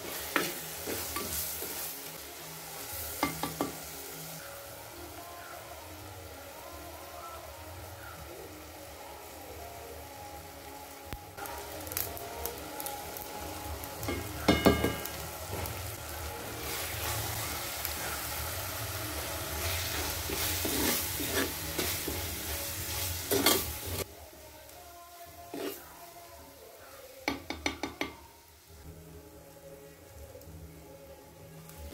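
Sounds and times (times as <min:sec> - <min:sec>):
onion and tomato sizzling: 0:00.0 - 0:31.9
spatula scraping and stirring: 0:19.2 - 0:24.0, 0:25.5 - 0:25.9.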